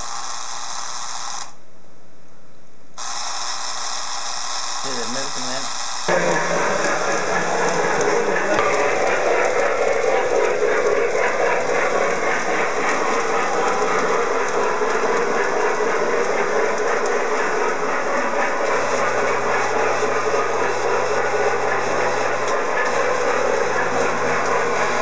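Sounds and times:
model train running: 0.0s - 1.6s, 3.0s - 25.0s
low hum: 6.1s - 25.0s.

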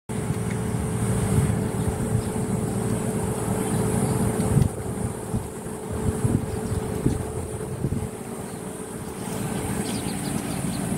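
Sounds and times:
steady hum: 0.1s - 10.9s
wind buffeting microphone: 0.1s - 10.9s.

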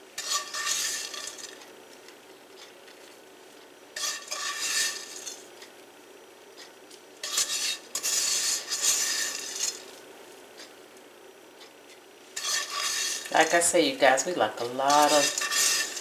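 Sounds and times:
spatula scraping crumbs in pan: 0.2s - 1.6s, 4.0s - 5.4s, 7.2s - 9.9s, 12.4s - 13.7s, 14.6s - 16.0s.

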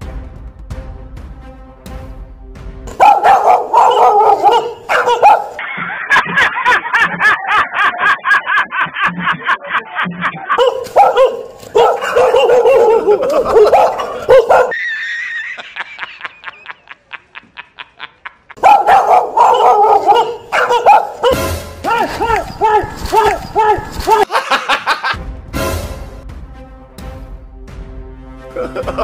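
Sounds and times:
dog barking rapidly: 2.9s - 5.6s, 10.6s - 14.8s, 18.6s - 24.3s.

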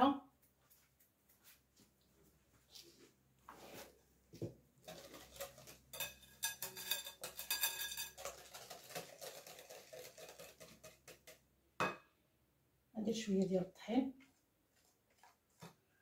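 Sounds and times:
whisk swishing in batter: 4.8s - 11.4s
whisk wires clinking on glass: 5.9s - 8.4s.

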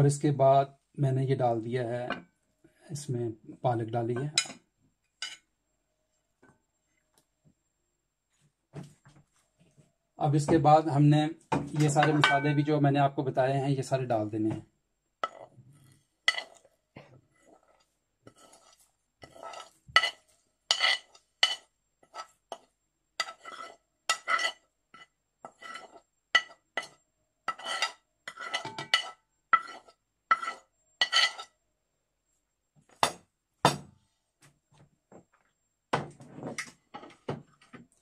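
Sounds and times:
metal spoon clinking on dishes: 11.9s - 12.6s, 19.2s - 22.3s, 26.4s - 31.5s.

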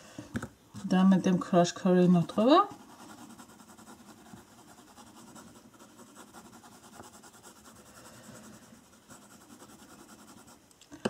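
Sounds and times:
pencil scratching on paper: 2.2s - 10.6s.

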